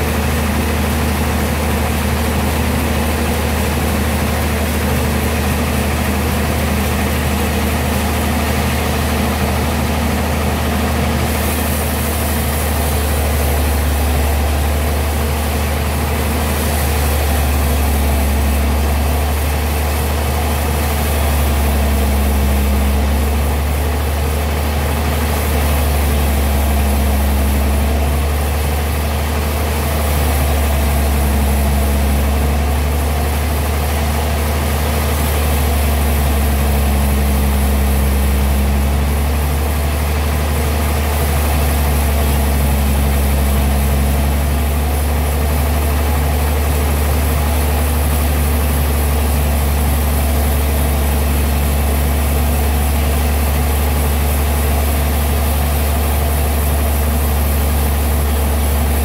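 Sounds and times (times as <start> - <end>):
band sawmill humming: 0.0 - 59.0.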